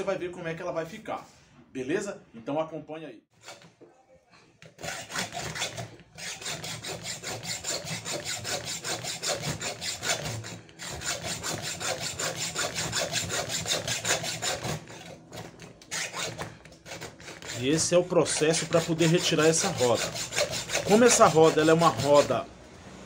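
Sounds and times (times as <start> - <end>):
hacksaw sawing metal: 3.4 - 3.7, 4.6 - 22.5.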